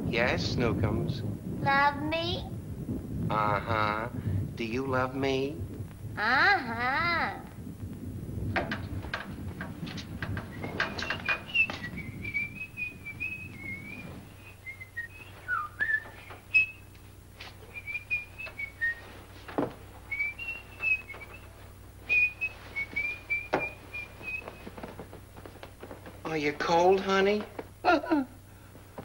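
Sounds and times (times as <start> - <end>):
bedclothes rustling: 8.9 - 27.8
person whistling: 10.5 - 16.9, 17.7 - 19.2, 20.1 - 21.5, 22.1 - 24.7.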